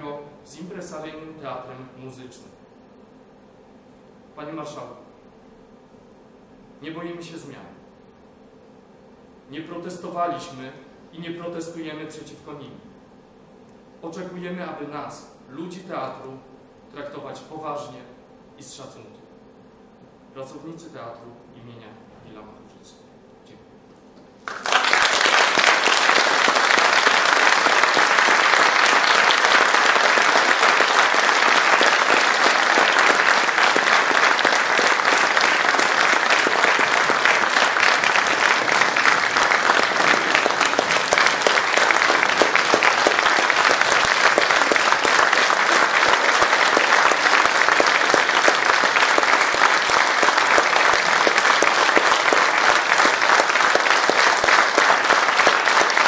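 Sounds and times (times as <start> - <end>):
audience applauding: 24.4 - 56.0.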